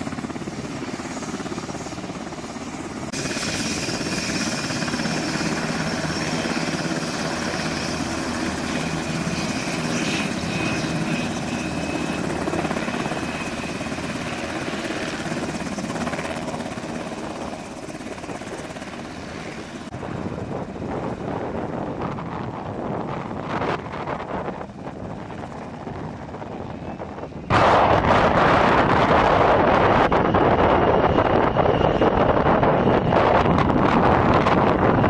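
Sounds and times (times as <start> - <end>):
helicopter rotor chopping: 0.0 - 35.0
turbine engines running: 19.5 - 35.0.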